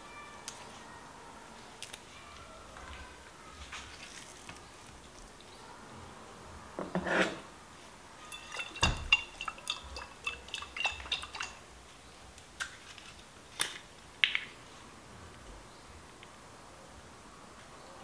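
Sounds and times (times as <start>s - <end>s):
utensil clinking against dish: 8.2s - 11.6s.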